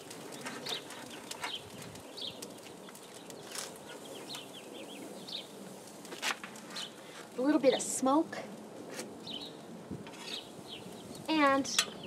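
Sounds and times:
birds chirping: 0:00.0 - 0:05.6, 0:09.2 - 0:12.0
metal tongs clicking on grill: 0:11.6 - 0:12.0.

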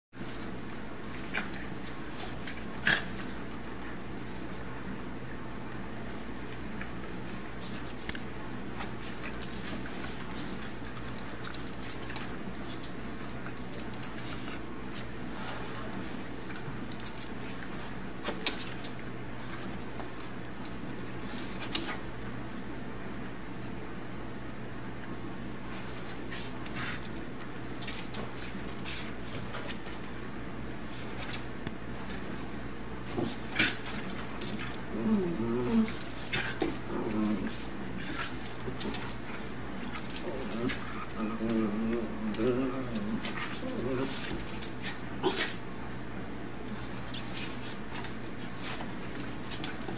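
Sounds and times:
dogs growling and whining: 0:33.2 - 0:45.8
dogs scuffling: 0:46.6 - 0:49.9.

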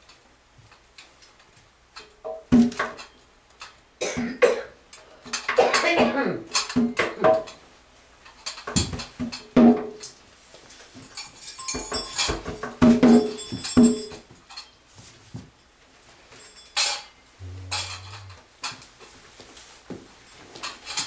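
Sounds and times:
low steady hum: 0:17.4 - 0:18.4.

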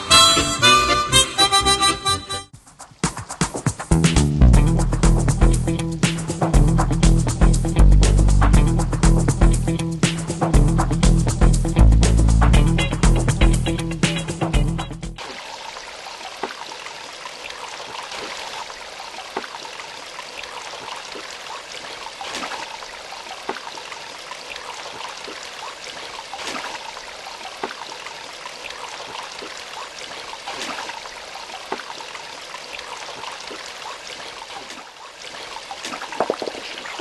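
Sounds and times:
stream babbling: 0:15.2 - 0:37.0
water splashing: 0:15.2 - 0:37.0.

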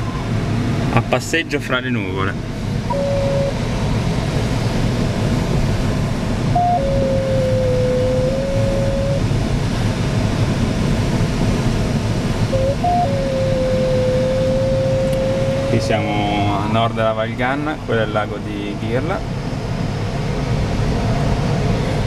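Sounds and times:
variometer tone: 0:02.8 - 0:04.1, 0:06.2 - 0:09.9, 0:12.3 - 0:17.1.

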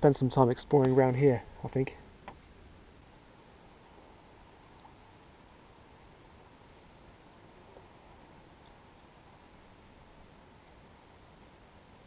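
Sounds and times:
faint outdoor air hiss: 0:00.0 - 0:12.0
faint click: 0:08.6 - 0:09.4.

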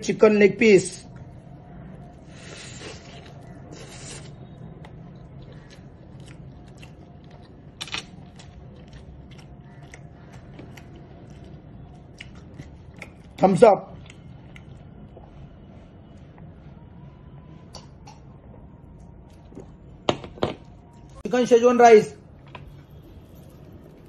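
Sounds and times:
chewing crunches: 0:02.6 - 0:15.3.

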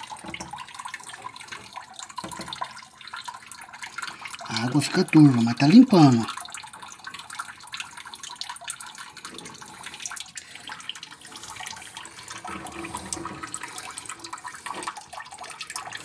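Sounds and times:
water sloshing in a tank: 0:00.0 - 0:16.0.

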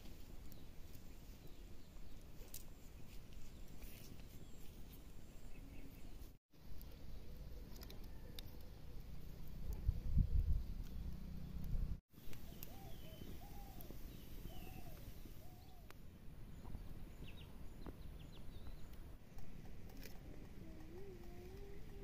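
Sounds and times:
birds calling: 0:10.7 - 0:15.9.

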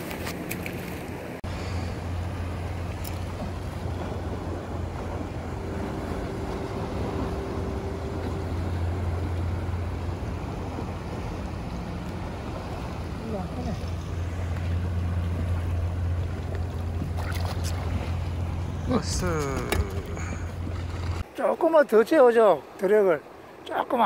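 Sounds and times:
water sloshing against boat: 0:00.0 - 0:24.0
faint steady tone: 0:01.5 - 0:17.0.

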